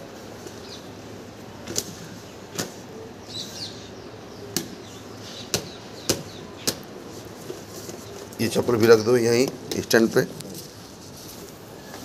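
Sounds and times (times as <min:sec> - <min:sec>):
faint bird chirps: 0:11.6 - 0:12.0.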